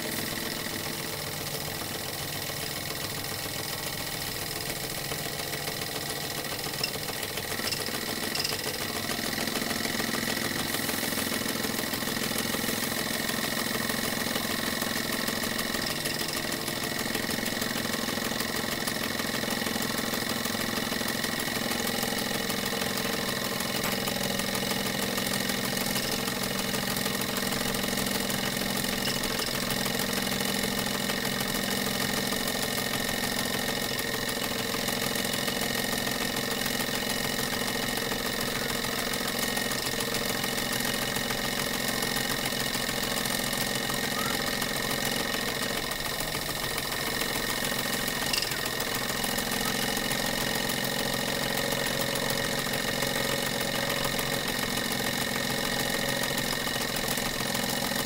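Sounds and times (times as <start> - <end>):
model steam engines running: 0.0 - 58.0
steam hissing: 7.5 - 17.3.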